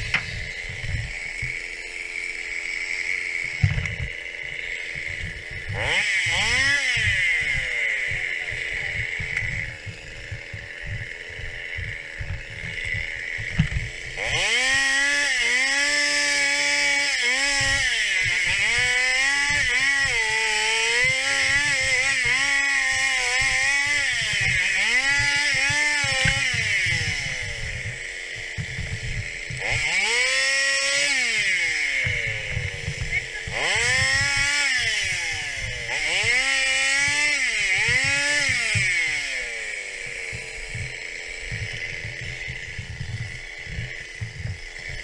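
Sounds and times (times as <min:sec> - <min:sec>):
chainsaw cutting branches: 0:00.0 - 0:45.0
chainsaw idling and revving: 0:00.0 - 0:45.0.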